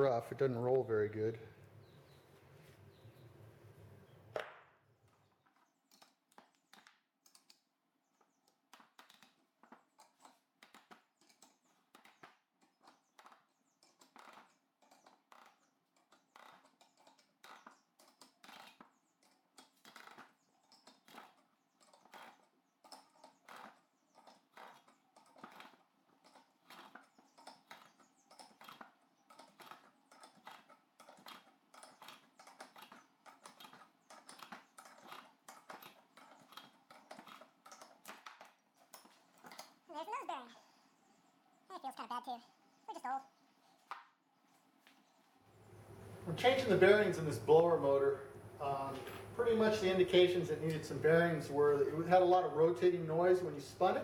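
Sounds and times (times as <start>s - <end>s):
faint clicking of bearing puller: 5.0s - 39.8s.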